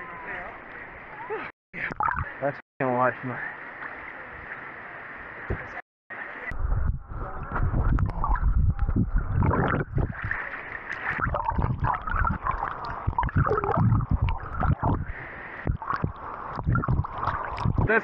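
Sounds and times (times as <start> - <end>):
muffled underwater rumbling: 6.5 - 18.0
water sloshing and splashing: 8.1 - 18.0.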